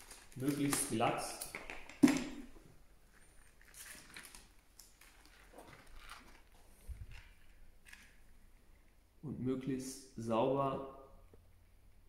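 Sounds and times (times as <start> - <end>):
rubber sheet and plastic film rustling: 0.0 - 1.5, 3.1 - 8.2.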